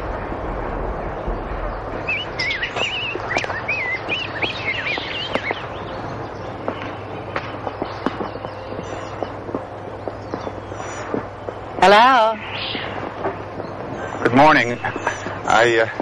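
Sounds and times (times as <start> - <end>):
steady outdoor hiss: 0.0 - 16.0
songbird warbling: 1.6 - 6.8.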